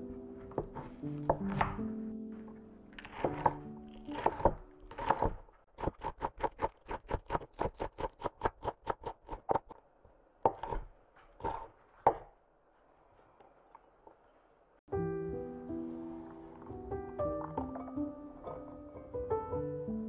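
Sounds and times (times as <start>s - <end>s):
knife chopping on wooden board: 0.5s - 1.8s, 3.0s - 9.7s, 10.4s - 12.3s.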